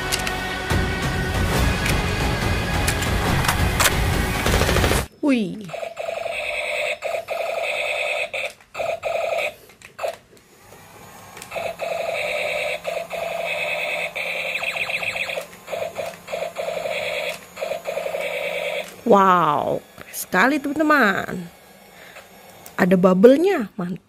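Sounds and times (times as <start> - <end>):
toy electronic beeping: 5.7 - 9.6, 11.5 - 19.8.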